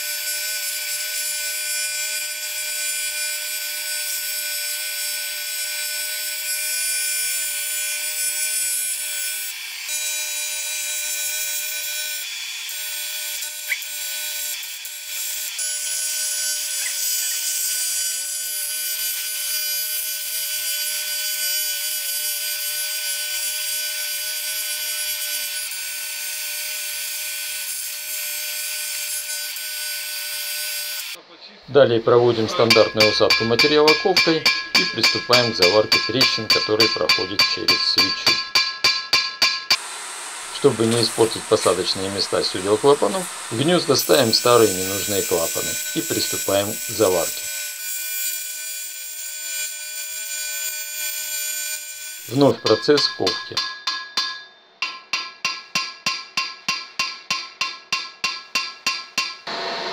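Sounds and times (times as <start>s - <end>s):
welding arc buzzing hiss: 0.0s - 31.2s, 32.2s - 53.3s, 56.4s - 59.9s.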